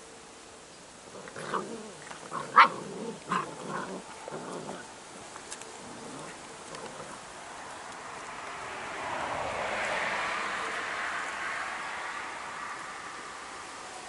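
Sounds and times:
puppies yapping and growling: 1.1s - 7.3s.

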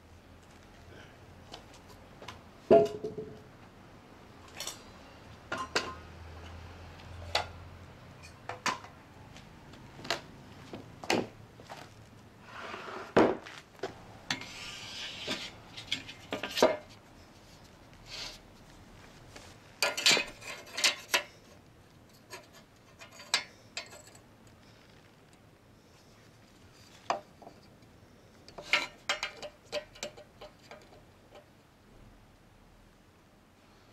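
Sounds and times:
metal scraping on wood: 14.3s - 18.5s, 19.8s - 21.4s.

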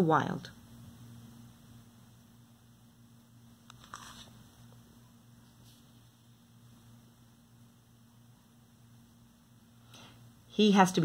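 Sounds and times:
faint electrical hum: 0.0s - 11.0s
soft rustle: 3.7s - 4.6s, 5.4s - 6.5s.

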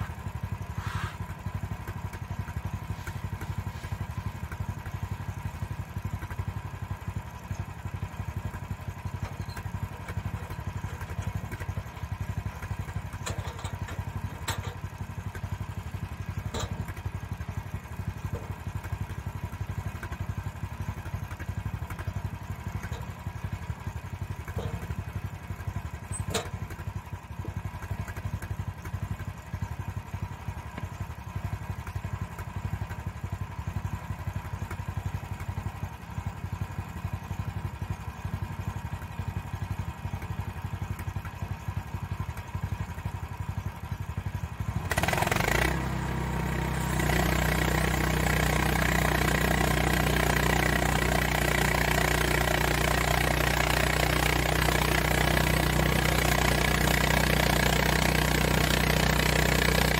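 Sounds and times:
sawmill engine running: 0.0s - 59.9s
knocks and clanks of log: 16.4s - 17.0s, 24.4s - 25.0s, 26.1s - 28.2s.

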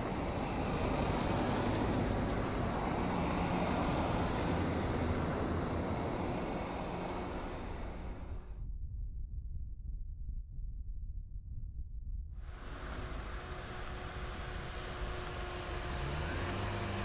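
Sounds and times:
cars driving on a dirt track: 0.0s - 8.5s, 12.5s - 17.0s.

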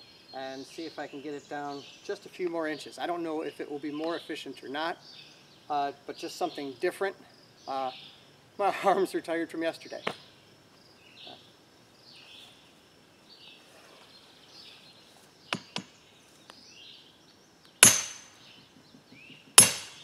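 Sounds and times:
sledgehammer striking steel pipe cap: 17.8s - 18.3s, 19.6s - 20.0s.

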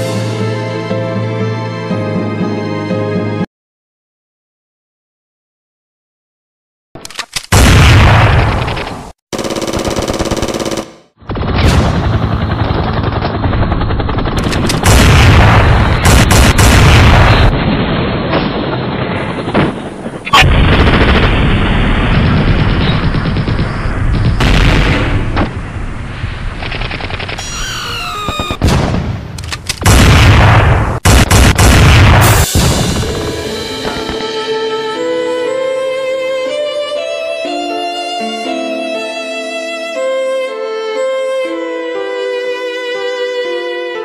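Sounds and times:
explosion booms: 7.5s - 8.7s, 11.3s - 14.2s, 14.8s - 27.4s, 28.3s - 34.4s
machine-gun fire: 7.5s - 25.6s, 28.3s - 34.2s
falling whistles: 27.4s - 28.6s.

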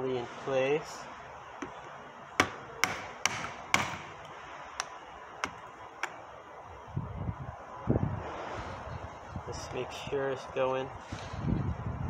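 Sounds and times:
hammer tapping screwdriver handles: 1.6s - 6.2s.

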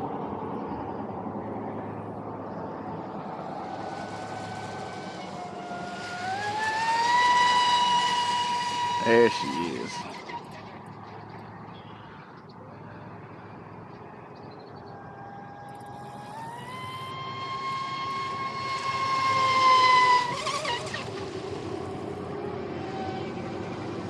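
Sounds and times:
rc boat electric motor whining: 3.1s - 12.0s, 15.0s - 24.0s.

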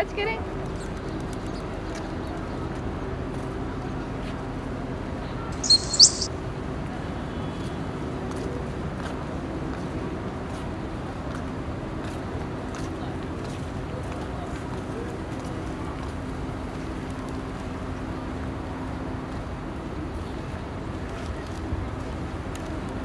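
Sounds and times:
bird chirps: 5.6s - 6.3s.

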